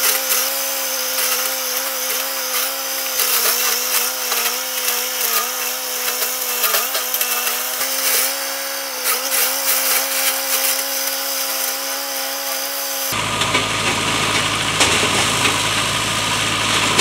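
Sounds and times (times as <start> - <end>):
tractor engine and flail mulcher: 0.0 - 17.0.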